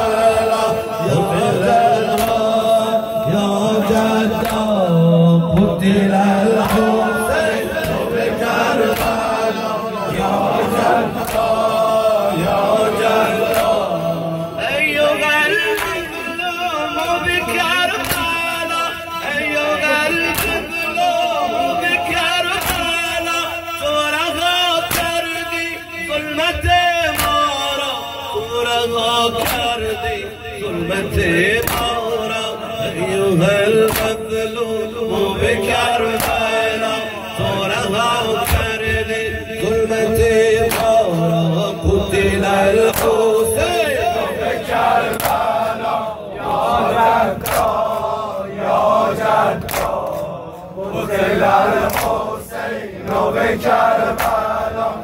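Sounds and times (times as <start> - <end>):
crowd of men chanting: 0.0 - 55.0
man chanting through microphone: 0.0 - 55.0
hands slapping chests: 2.1 - 2.6, 4.3 - 4.7, 6.6 - 6.9, 7.8 - 9.4, 11.0 - 11.8, 13.3 - 13.9, 15.7 - 16.1, 18.0 - 18.4, 20.3 - 20.7, 22.6 - 23.0, 24.8 - 25.2, 27.1 - 27.4, 29.4 - 29.8, 31.6 - 32.0, 33.8 - 34.2, 36.1 - 36.5, 38.4 - 38.7, 40.6 - 41.1, 42.9 - 43.2, 45.0 - 45.6, 47.0 - 48.0, 49.5 - 50.4, 51.6 - 52.3, 54.0 - 54.6.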